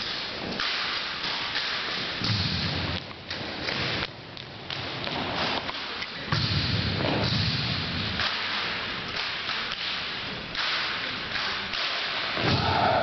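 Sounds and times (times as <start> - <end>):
hands slapping rifles: 8.2 - 12.3.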